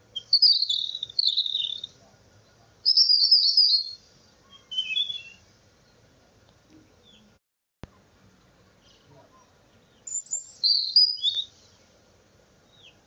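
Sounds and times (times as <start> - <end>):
bird chirping: 0.0 - 6.1, 6.8 - 7.4, 8.8 - 12.0, 12.6 - 13.0.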